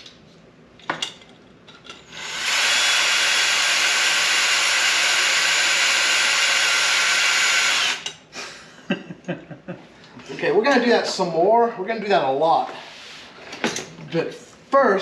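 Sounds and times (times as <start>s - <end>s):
electric drill spinning: 2.1s - 8.1s.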